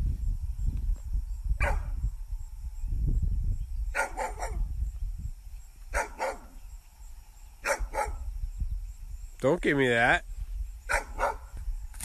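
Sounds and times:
dog barking: 1.6 - 1.9, 3.9 - 4.7, 5.9 - 6.6, 7.6 - 8.2, 10.9 - 11.5.

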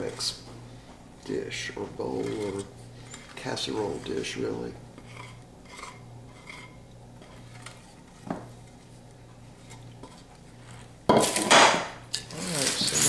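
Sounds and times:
wooden spoon scraping metal pot: 1.8 - 4.4, 5.0 - 11.0.

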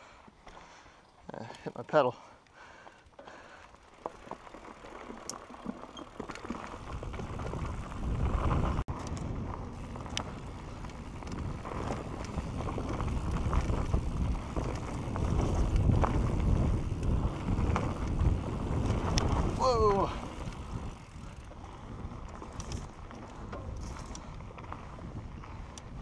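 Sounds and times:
bike tyres rolling over dirt: 0.0 - 26.0
bike rattling and knocking: 3.8 - 26.0
wind buffeting microphone: 6.7 - 26.0.

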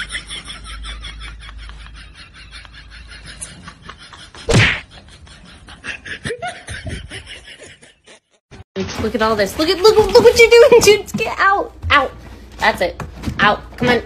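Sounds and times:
loud sudden whack: 4.5 - 4.9.

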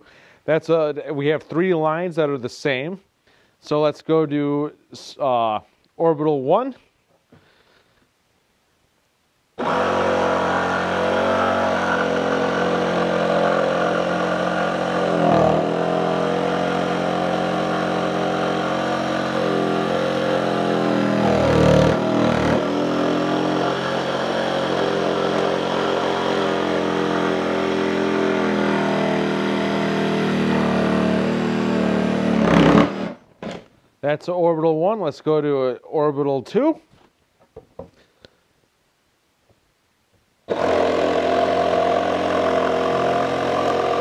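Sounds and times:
jigsaw sawing through wood: 9.6 - 33.6, 40.5 - 44.0.

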